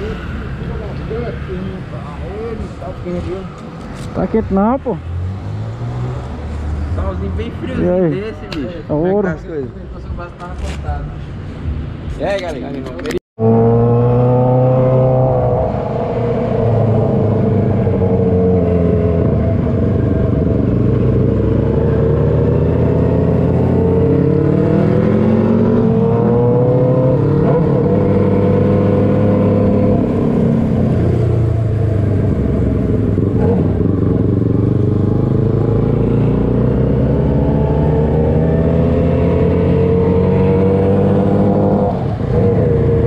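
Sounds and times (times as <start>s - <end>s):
motorcycle engine revving: 13.4s - 43.0s.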